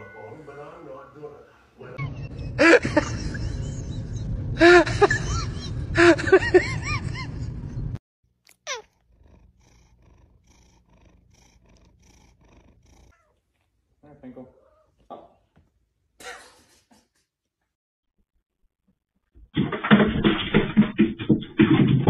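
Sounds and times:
low steady rumble: 2.0s - 8.0s
cat meowing: 8.5s - 9.0s.

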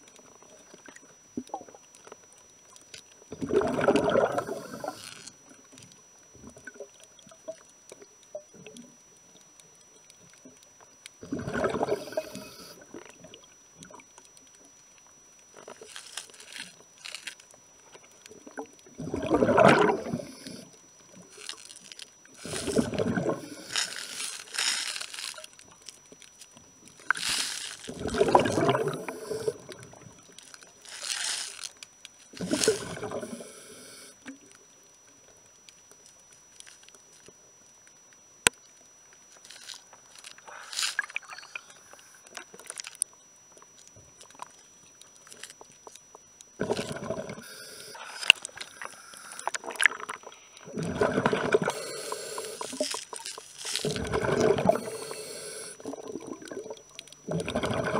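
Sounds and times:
exhaled air bubbling underwater: 3.3s - 5.7s, 11.2s - 14.2s, 18.3s - 24.4s, 26.8s - 31.0s, 32.3s - 34.5s, 46.1s - 57.9s.

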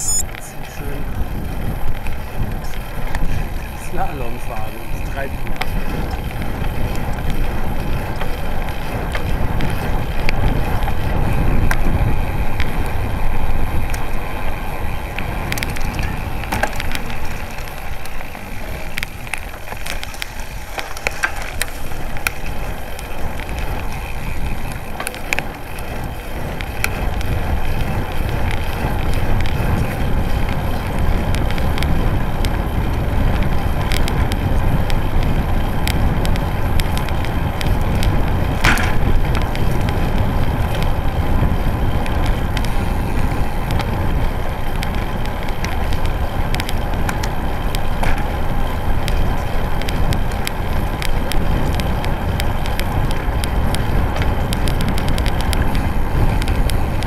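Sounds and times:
bike tyre rumble: 0.0s - 57.0s
wind buffeting microphone: 0.0s - 57.0s
small clicks and rattles: 1.6s - 57.0s.

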